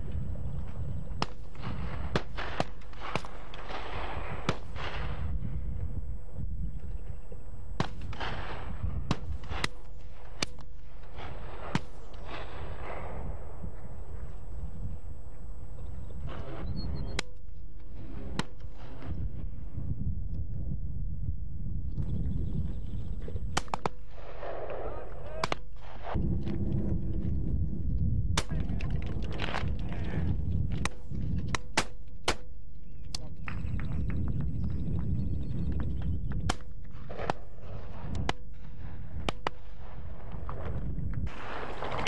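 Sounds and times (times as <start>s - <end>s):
low wind rumble: 0.0s - 42.0s
shotguns firing: 1.2s - 5.3s, 7.8s - 13.2s, 23.5s - 26.2s, 30.8s - 32.6s, 36.5s - 42.0s.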